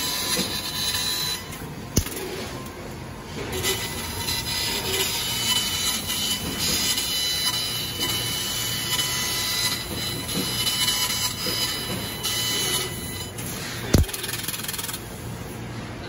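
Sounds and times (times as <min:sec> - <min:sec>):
faint high machine tones: 0:00.0 - 0:15.1.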